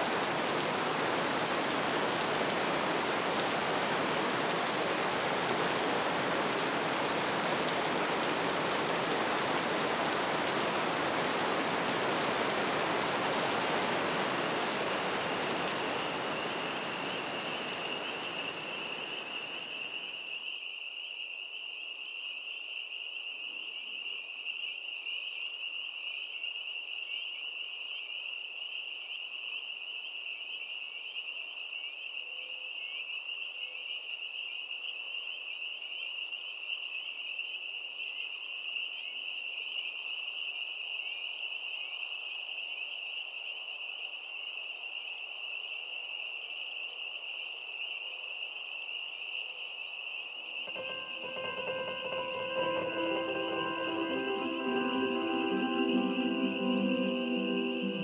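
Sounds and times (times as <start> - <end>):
rain-like hiss: 0.0 - 20.4, 50.7 - 58.0.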